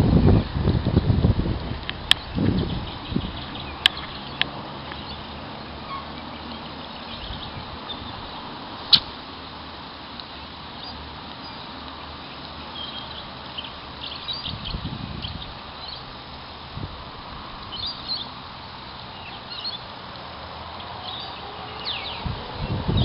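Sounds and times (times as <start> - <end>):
wind noise on microphone: 0.0 - 9.2, 14.3 - 18.4, 21.2 - 23.0
sharp clicks: 8.9 - 9.2.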